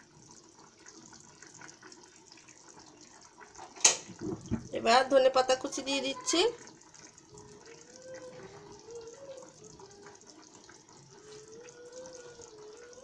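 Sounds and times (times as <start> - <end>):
curry bubbling in a pot: 0.0 - 13.0
faint wavering hum: 7.0 - 13.0.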